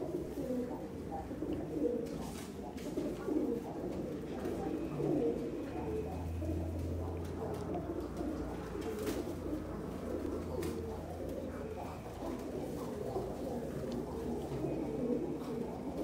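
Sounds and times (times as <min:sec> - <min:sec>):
pigeons cooing: 0:00.0 - 0:16.0
low steady hum: 0:03.6 - 0:16.0.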